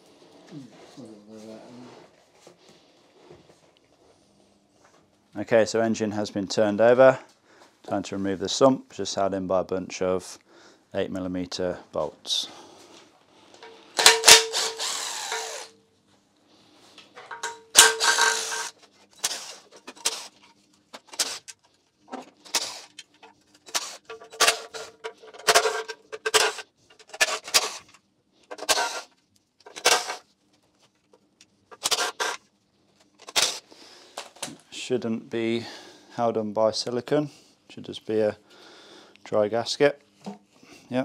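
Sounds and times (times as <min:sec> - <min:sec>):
power driver spinning bolts: 0:13.6 - 0:15.7, 0:17.3 - 0:27.9, 0:28.5 - 0:29.1, 0:29.7 - 0:30.2, 0:31.7 - 0:32.4.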